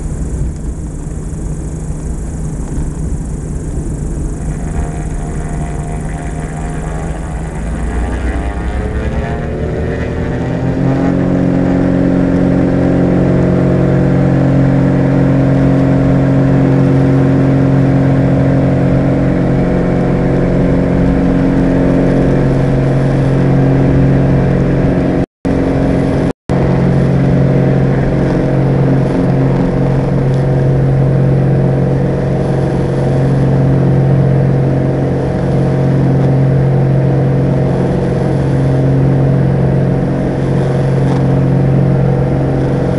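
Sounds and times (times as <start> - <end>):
twin propeller plane engines droning: 0.0 - 42.9.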